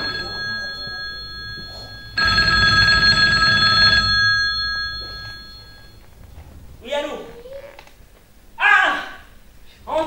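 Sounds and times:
telephone bell ringing: 0:00.0 - 0:06.1.

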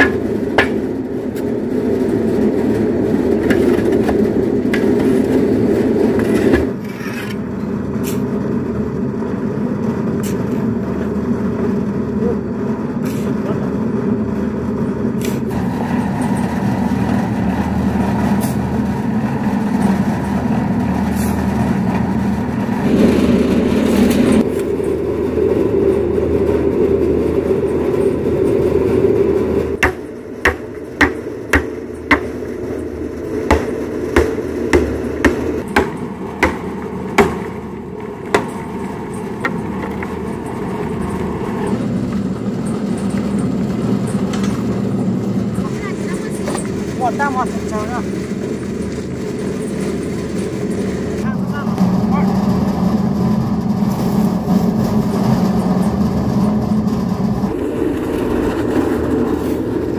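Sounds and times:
sharp knocks: 0:00.0 - 0:01.0, 0:29.8 - 0:32.5, 0:33.4 - 0:38.8.

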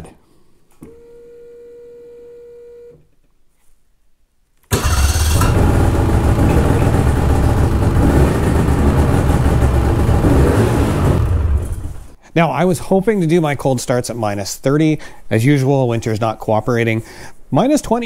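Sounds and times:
snowmobile engine starting and running: 0:04.7 - 0:12.2.

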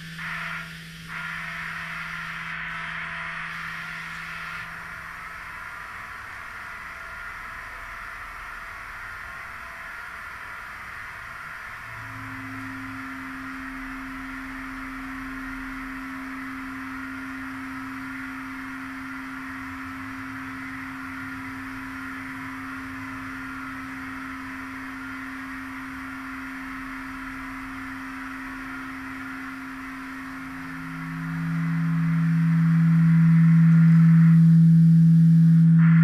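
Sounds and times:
electronic sine tone: 0:00.0 - 0:36.0.

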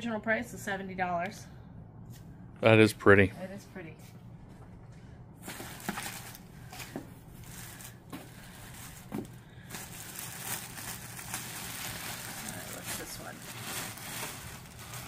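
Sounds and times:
faint steady hum: 0:00.0 - 0:15.0
clothing and packaging rustling: 0:05.4 - 0:15.0.

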